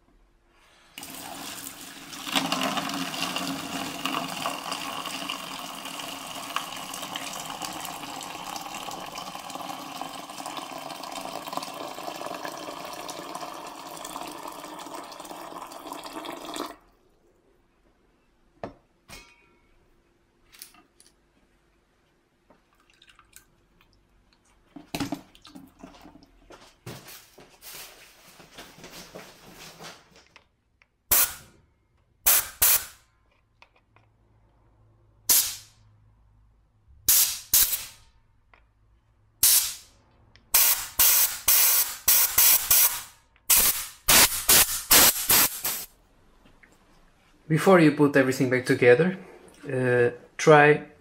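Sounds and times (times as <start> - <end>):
water pouring into plastic tub: 1.0 - 17.1, 22.7 - 23.6.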